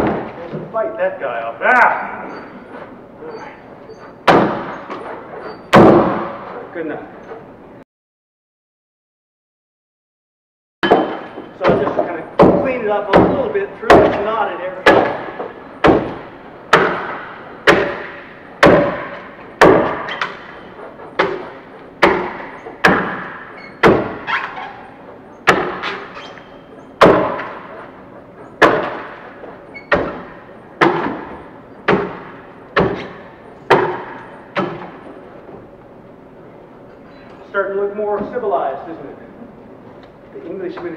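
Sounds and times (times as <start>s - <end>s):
axe chopping into log: 14.9s - 20.4s, 22.0s - 24.2s, 25.5s - 26.0s, 27.0s - 27.6s, 28.6s - 29.2s, 29.9s - 31.3s, 31.9s - 35.0s.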